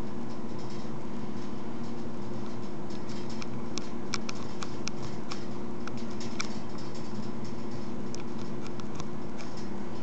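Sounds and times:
steady low hum: 0.0 - 10.0
cat claws clicking on floor: 1.8 - 9.7.

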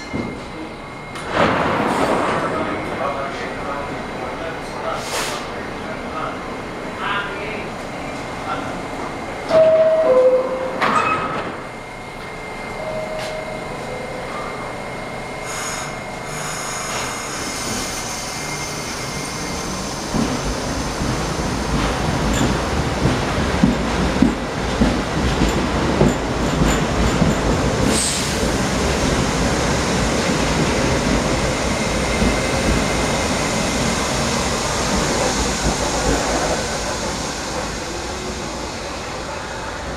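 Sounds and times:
train doors shutting with knock: 0.0 - 3.2, 9.4 - 12.3, 13.0 - 14.7, 20.1 - 29.5
subway train rumble: 0.0 - 39.9
high wheel squeal: 15.4 - 20.1.

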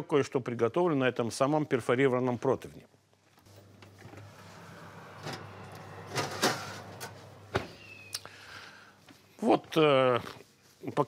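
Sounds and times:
oven humming: 3.5 - 8.9.

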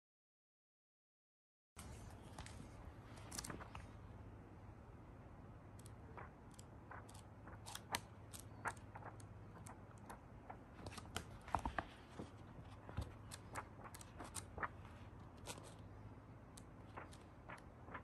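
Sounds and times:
book pages turning: 1.8 - 4.0, 5.8 - 15.9, 16.6 - 18.0.

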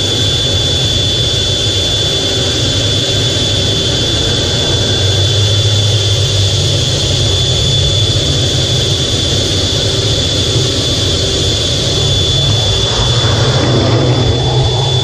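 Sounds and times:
jet engine roar with high whine: 0.0 - 15.0.

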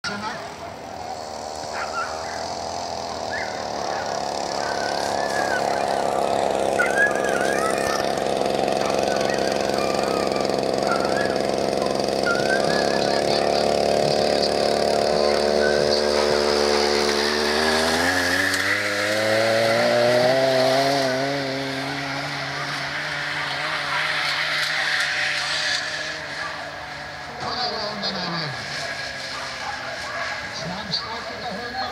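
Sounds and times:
dogs whining: 1.6 - 13.8
lure machine motor running: 2.4 - 22.6.

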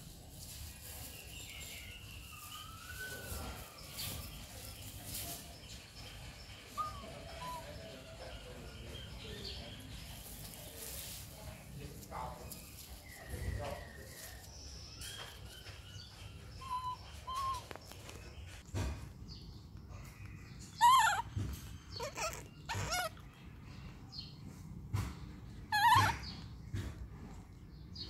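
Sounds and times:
baby monkey crying: 6.8 - 8.2, 16.6 - 17.6, 20.7 - 23.4, 25.7 - 26.4.

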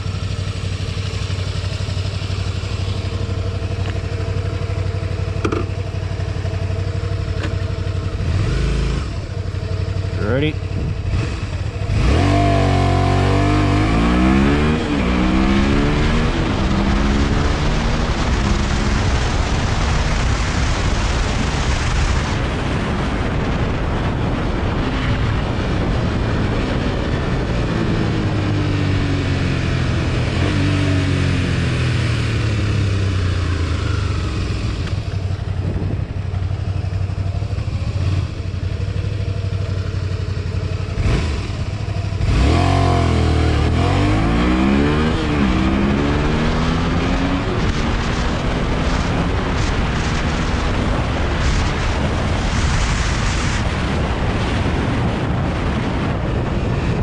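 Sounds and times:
motorcycle engine revving: 0.0 - 57.0
wind rushing at speed: 10.6 - 57.0.

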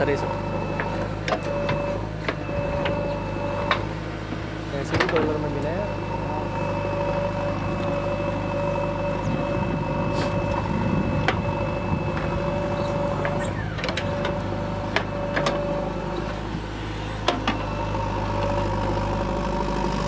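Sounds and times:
diesel engine under load: 0.0 - 20.0.

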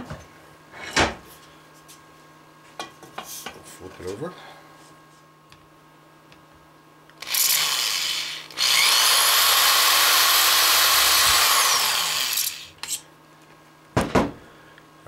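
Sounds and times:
electric drill boring through metal: 7.2 - 13.0.

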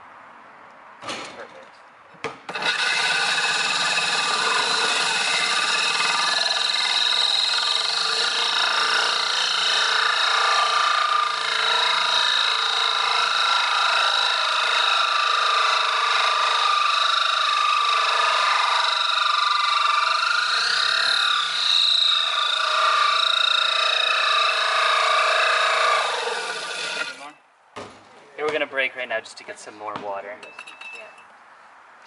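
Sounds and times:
electric drill grinding glass: 2.5 - 27.3.

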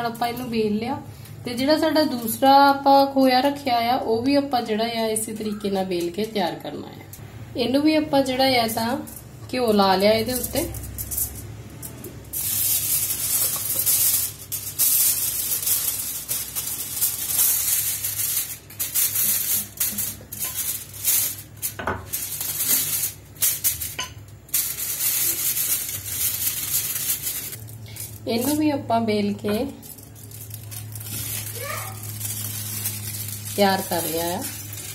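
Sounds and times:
aluminium foil crinkling: 1.6 - 3.4, 8.6 - 34.9
rolling pin on foil: 8.7 - 28.7, 29.4 - 34.9.

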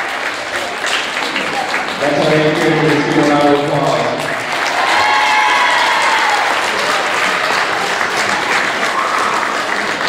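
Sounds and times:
crowd applauding: 0.0 - 10.0.

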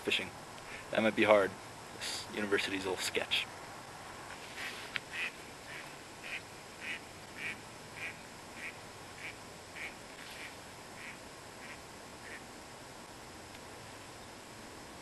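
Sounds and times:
duck quacking: 4.6 - 12.4.

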